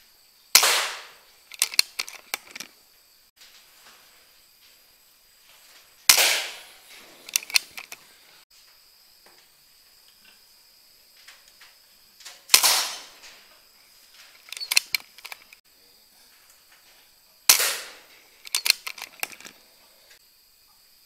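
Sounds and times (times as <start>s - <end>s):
air rifle shot: 0.5s - 2.1s, 6.1s - 7.9s, 12.5s - 13.2s, 17.5s - 19.3s
quick run of sharp clicks: 0.6s - 2.7s, 6.1s - 8.1s, 12.5s - 13.4s, 14.3s - 15.6s, 17.5s - 19.6s.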